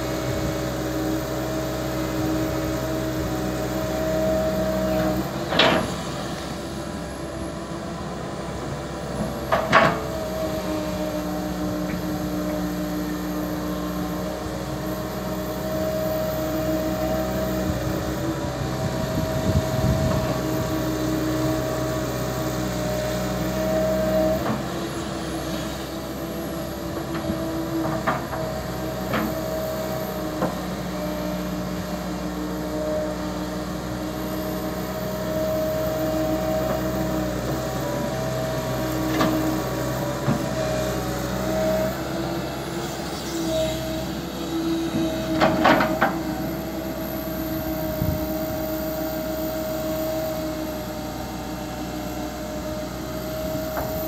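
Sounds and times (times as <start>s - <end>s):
excavator diesel engine running: 0.0s - 54.0s
excavator metal clanks: 9.4s - 10.2s, 45.0s - 46.4s.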